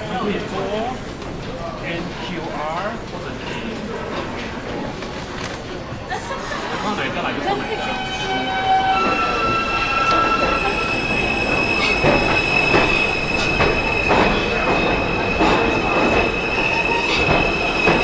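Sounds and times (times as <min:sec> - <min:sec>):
subway train squealing: 0:00.0 - 0:18.0
wheels clacking over rail joints: 0:10.0 - 0:18.0.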